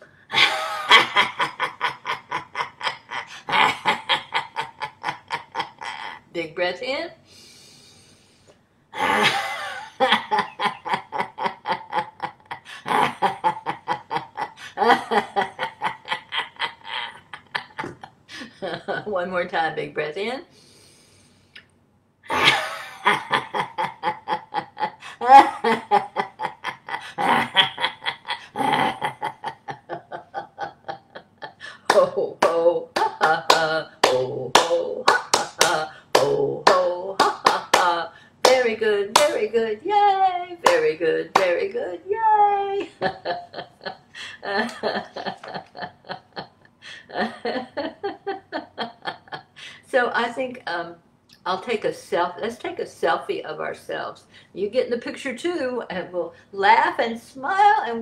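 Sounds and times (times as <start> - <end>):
woman laughing rhythmically: 0.3 - 6.4, 9.0 - 19.1, 22.3 - 50.0.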